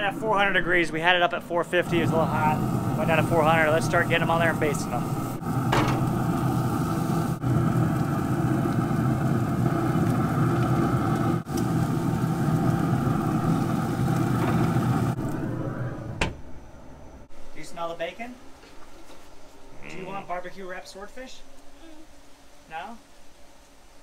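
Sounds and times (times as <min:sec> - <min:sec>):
grill mechanical drone: 0:00.0 - 0:18.4.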